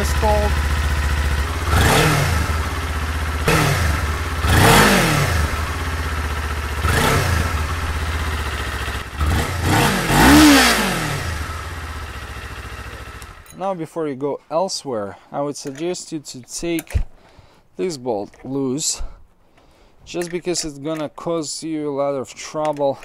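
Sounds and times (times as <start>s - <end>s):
motorcycle engine idling and revving: 0.0s - 13.5s.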